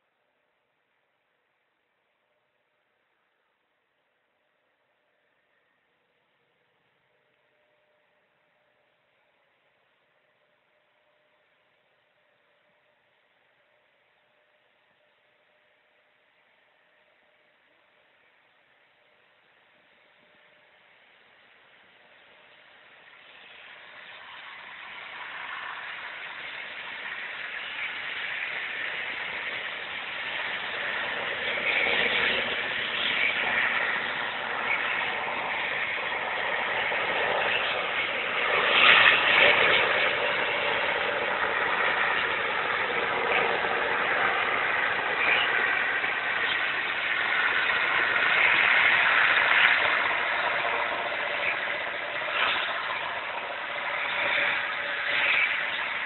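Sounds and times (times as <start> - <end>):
diesel locomotive engine: 0.0 - 56.0.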